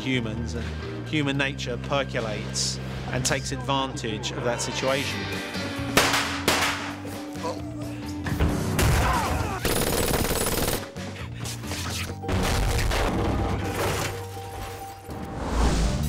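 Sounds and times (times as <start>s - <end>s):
dramatic background music: 0.0s - 16.0s
rapid gunfire: 9.6s - 11.0s.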